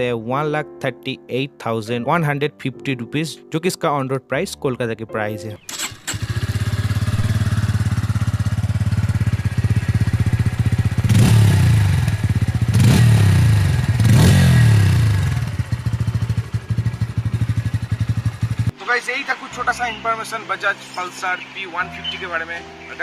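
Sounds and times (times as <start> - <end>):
motorcycle engine idling and revving: 5.7 - 18.8.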